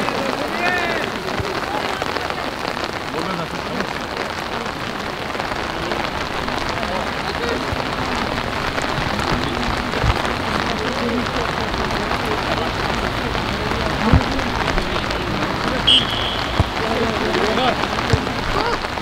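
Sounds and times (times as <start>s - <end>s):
steady rain patter: 0.0s - 19.0s
faint distant shouts: 15.8s - 17.8s.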